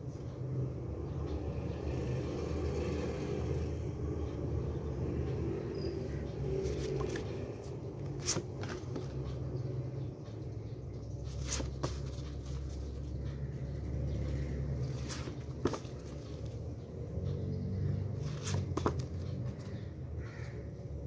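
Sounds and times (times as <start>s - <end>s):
steady low rumble: 3.8s - 20.2s
photo cards shuffled: 6.6s - 9.3s, 11.2s - 13.1s, 14.8s - 16.5s.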